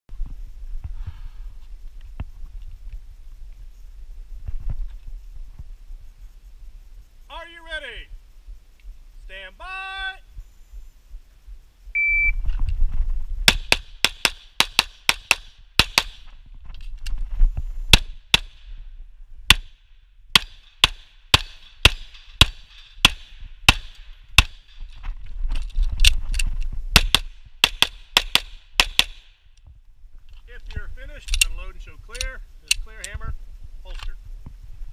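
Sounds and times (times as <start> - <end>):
pistol shots: 13.5 - 16.2, 19.5 - 24.8, 26.9 - 29.3.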